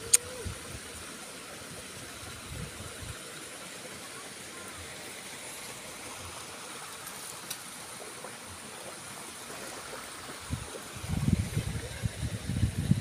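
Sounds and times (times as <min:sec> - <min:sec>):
rushing outdoor noise: 0:00.0 - 0:13.0
wind buffeting microphone: 0:10.4 - 0:13.0.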